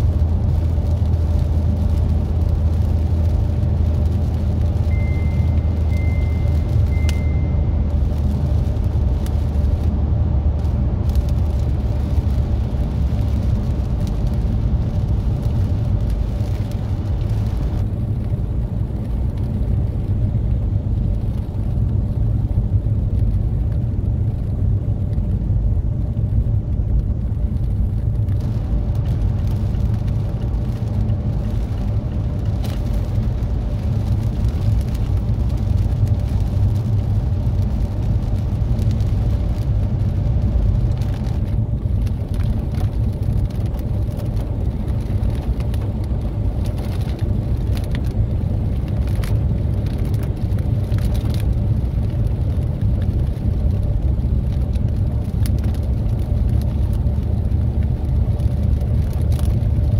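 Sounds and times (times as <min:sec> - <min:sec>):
tyres hissing on wet road: 0:00.0 - 0:07.0, 0:07.8 - 0:23.6
tyres and engine rumble: 0:00.0 - 0:59.9.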